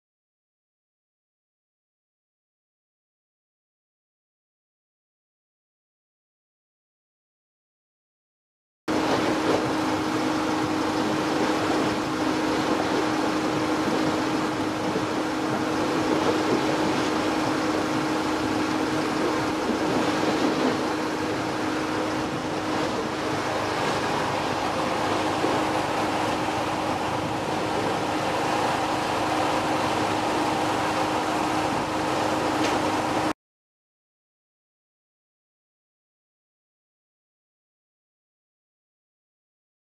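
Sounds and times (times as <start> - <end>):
motor yacht engine drone: 8.9 - 33.4.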